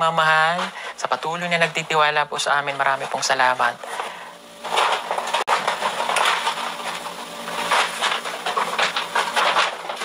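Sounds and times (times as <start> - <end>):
plastic packaging rustling: 3.0 - 10.0.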